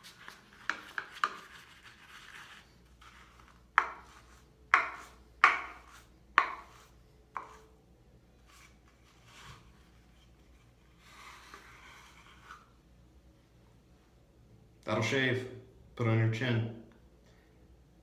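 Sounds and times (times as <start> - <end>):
brush swishing lather: 0.0 - 7.7
brush knocking on wooden bowl: 3.7 - 6.8.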